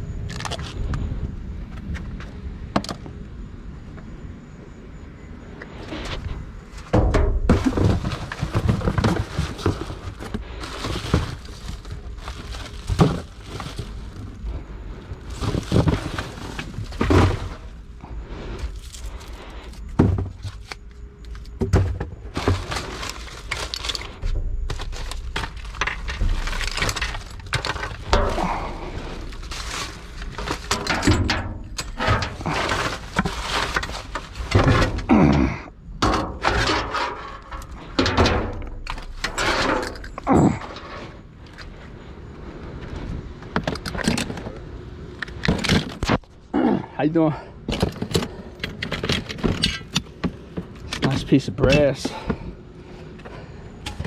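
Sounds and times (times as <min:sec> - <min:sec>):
trash thudding and rattling: 0:05.8 - 0:41.8, 0:45.2 - 0:46.5, 0:47.3 - 0:54.0
trash rustling: 0:05.8 - 0:42.0, 0:47.6 - 0:54.0.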